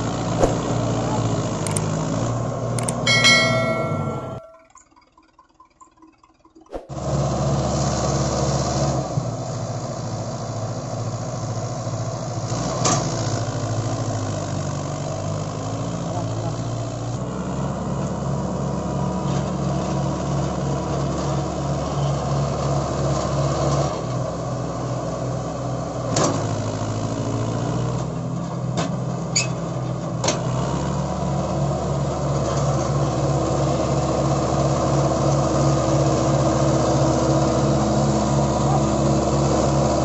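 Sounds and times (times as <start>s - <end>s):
tractor diesel engine under load: 0.0s - 40.0s
sharp clicks: 1.6s - 1.9s, 2.8s - 3.0s.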